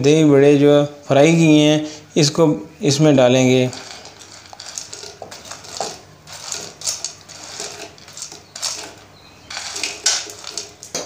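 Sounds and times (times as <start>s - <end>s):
spoon scraping a ceramic plate: 3.5s - 11.0s.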